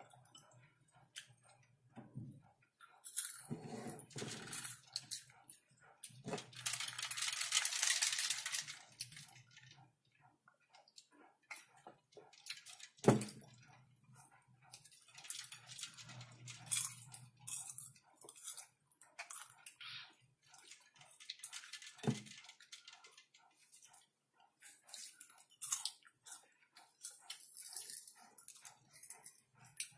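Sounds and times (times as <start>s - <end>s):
crunching and chewing: 3.0s - 29.9s
hand rustling through popcorn: 6.3s - 9.4s.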